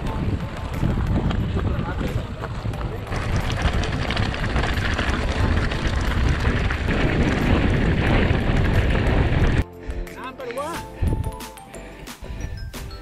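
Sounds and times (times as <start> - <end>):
bike rattling with quick clicks: 0.0 - 9.6
bike tyres crunching on gravel: 0.0 - 9.6
wind buffeting microphone: 0.0 - 9.6.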